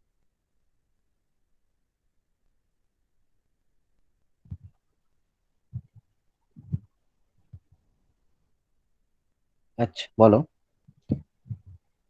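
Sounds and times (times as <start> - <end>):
soft dull thumps: 4.5 - 4.8, 5.7 - 7.8, 10.9 - 11.9.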